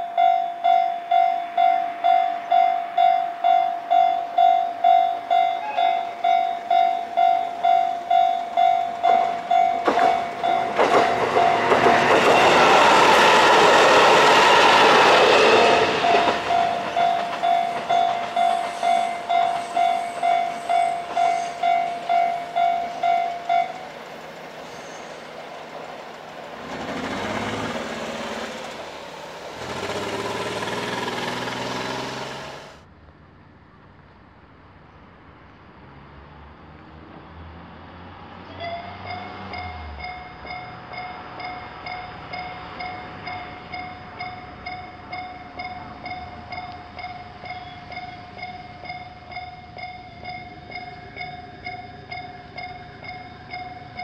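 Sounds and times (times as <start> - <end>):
level crossing warning bell: 0.0 - 24.1, 38.6 - 54.0
train passing loudly: 0.0 - 32.9, 35.8 - 54.0
train engine noise: 0.0 - 54.0.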